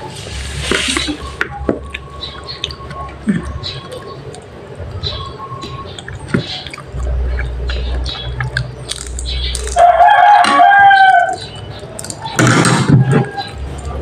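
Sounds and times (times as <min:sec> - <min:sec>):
rooster crowing: 0:09.8 - 0:11.4.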